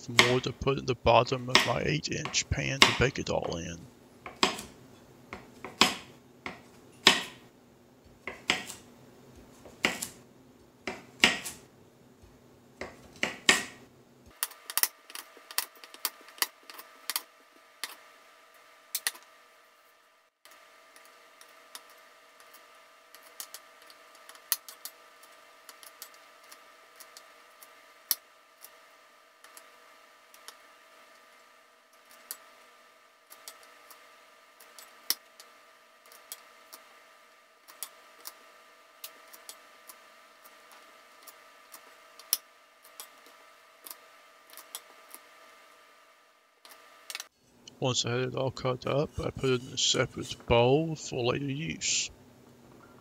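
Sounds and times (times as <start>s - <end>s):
faint steady hum: 0.0s - 53.0s
knife chopping on wooden board: 2.8s - 3.0s, 4.3s - 4.7s, 5.4s - 7.4s, 8.3s - 8.8s, 9.7s - 10.2s, 10.9s - 11.6s.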